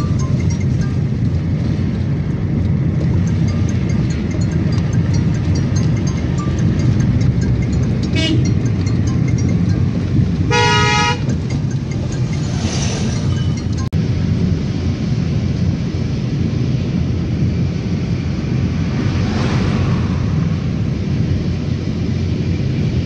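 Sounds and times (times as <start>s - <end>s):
car engine and tyres rumbling: 0.0s - 23.0s
vehicle horn: 8.0s - 8.7s, 10.4s - 11.5s.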